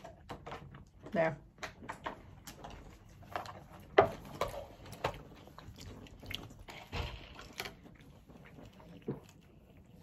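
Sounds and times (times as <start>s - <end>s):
chewing: 2.4s - 10.0s.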